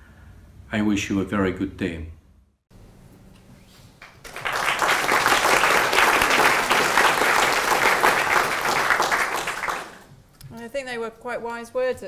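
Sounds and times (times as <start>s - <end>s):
audience applauding: 4.0s - 10.1s.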